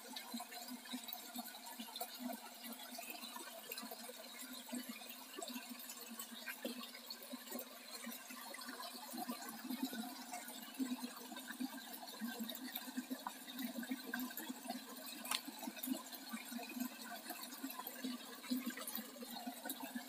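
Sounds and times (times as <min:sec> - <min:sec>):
water trickling over rock: 0:00.0 - 0:20.0.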